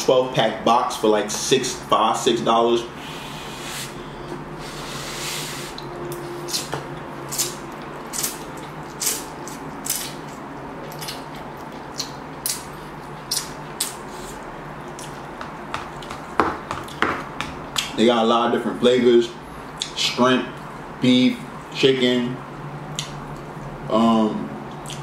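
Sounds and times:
chewing mouth sounds: 0:07.3 - 0:17.0.

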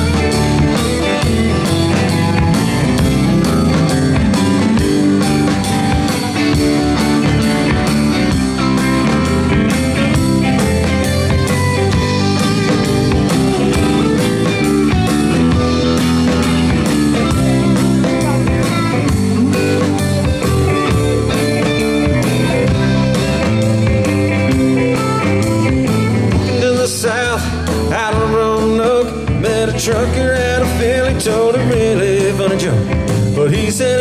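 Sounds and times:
bass guitar: 0:00.0 - 0:34.0
electric guitars: 0:00.0 - 0:34.0
steady drum beat: 0:00.0 - 0:34.0.

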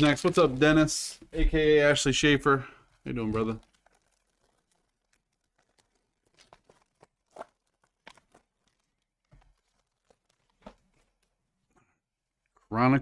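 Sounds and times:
wrapper tearing: 0:00.0 - 0:00.9, 0:03.0 - 0:11.5
wrapper crinkling and rustling: 0:00.0 - 0:01.2, 0:02.0 - 0:11.7.

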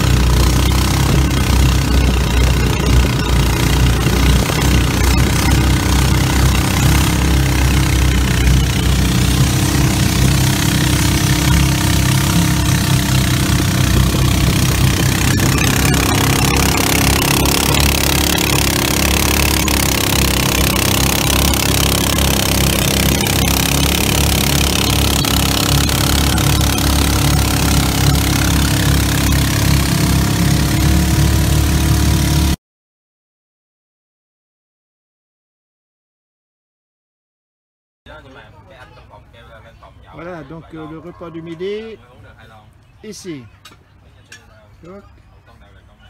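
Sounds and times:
boat motor running: 0:00.0 - 0:32.6.

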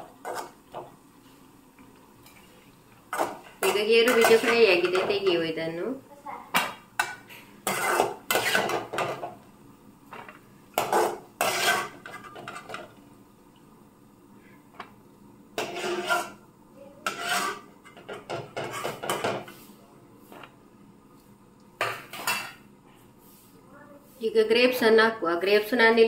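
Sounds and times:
metal skimmer scraping a pan: 0:07.0 - 0:09.2, 0:10.8 - 0:12.8, 0:15.6 - 0:16.4, 0:17.0 - 0:19.6.

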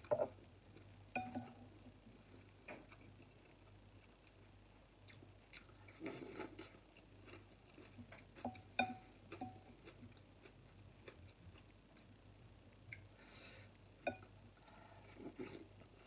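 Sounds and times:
chewing: 0:05.0 - 0:12.1.

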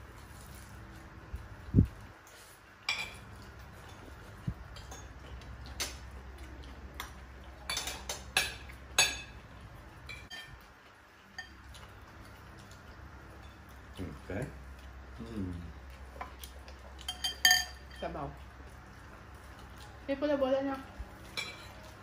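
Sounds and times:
spoons clinking on ceramic plates: 0:02.9 - 0:04.0, 0:07.7 - 0:09.4, 0:10.1 - 0:10.6, 0:17.0 - 0:18.1, 0:21.2 - 0:21.9.

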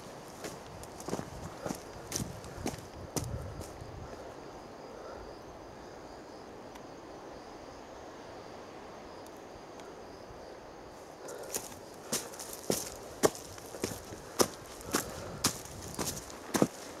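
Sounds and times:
insects chirring: 0:00.0 - 0:17.0
footsteps on leaves and stones: 0:00.3 - 0:03.4, 0:11.4 - 0:17.0.

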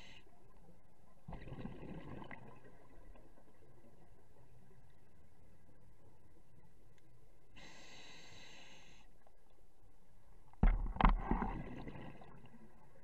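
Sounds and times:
gurgling exhaled bubbles: 0:01.3 - 0:03.2, 0:10.8 - 0:12.8
diver inhaling through regulator: 0:07.6 - 0:09.1.

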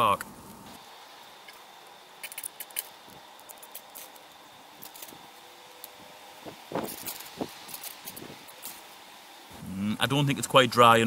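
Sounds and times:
seed heads rustling: 0:00.7 - 0:09.5.

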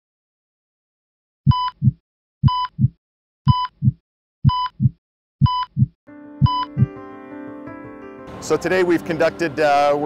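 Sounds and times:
electronic heart monitor beep: 0:01.5 - 0:06.9
low heartbeat double thump: 0:01.5 - 0:06.9
sustained music chord: 0:06.1 - 0:10.0.

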